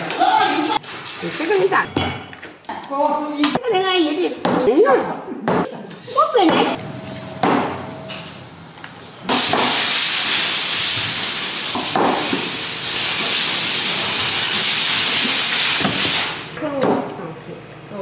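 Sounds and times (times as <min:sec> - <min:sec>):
loud steady hiss: 0:06.8 - 0:16.5.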